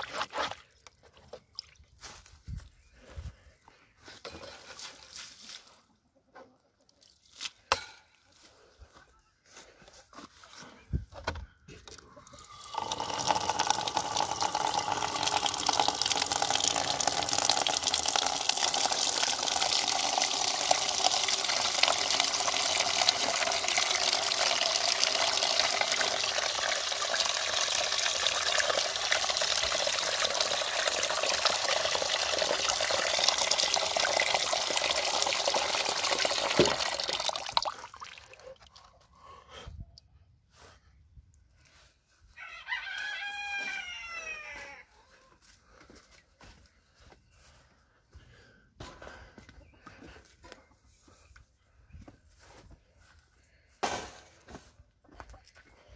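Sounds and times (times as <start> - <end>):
water pouring into metal pan: 12.4 - 38.4.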